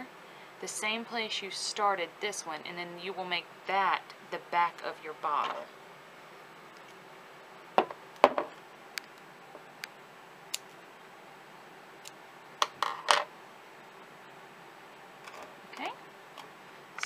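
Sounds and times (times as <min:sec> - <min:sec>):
glass bottle knocking: 0:07.8 - 0:08.5.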